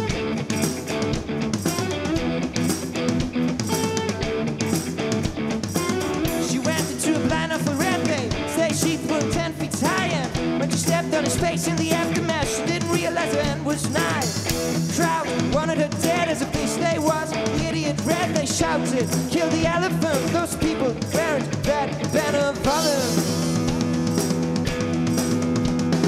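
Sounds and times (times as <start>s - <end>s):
drum kit: 0.0s - 26.0s
electric guitar: 0.0s - 26.0s
man singing: 6.1s - 24.2s.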